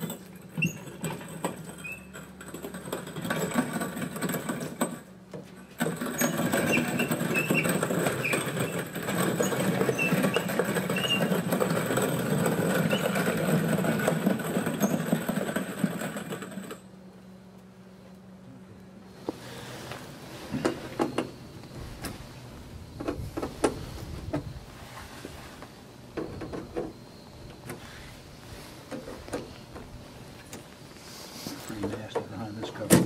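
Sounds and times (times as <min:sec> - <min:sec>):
wheel squeaks: 0:00.0 - 0:05.0, 0:05.6 - 0:16.9
cabinet casters rolling on concrete: 0:00.0 - 0:16.9.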